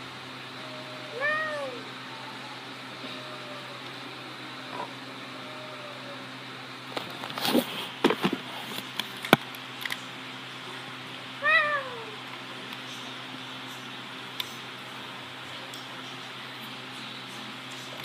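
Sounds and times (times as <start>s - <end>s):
cat meowing: 0.7s - 3.9s, 11.4s - 12.2s.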